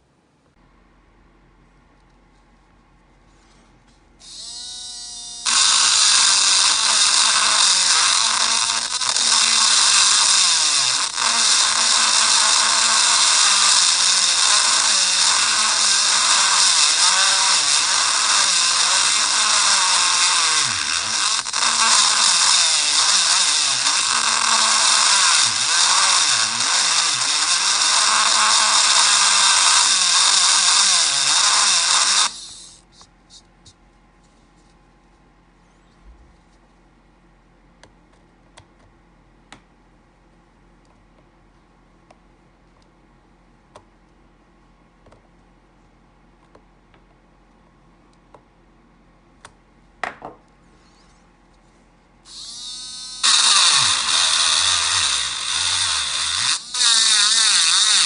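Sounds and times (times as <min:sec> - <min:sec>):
engraving pen buzzing: 0:04.2 - 0:33.4, 0:52.3 - 0:58.0.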